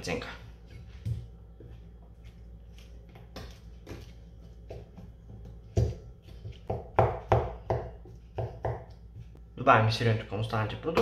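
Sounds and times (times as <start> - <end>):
knife chopping on wooden board: 3.1 - 9.2.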